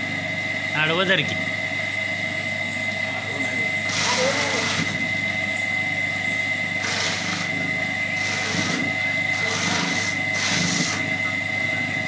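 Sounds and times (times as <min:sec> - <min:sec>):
electric motor high tone: 0:02.6 - 0:12.0.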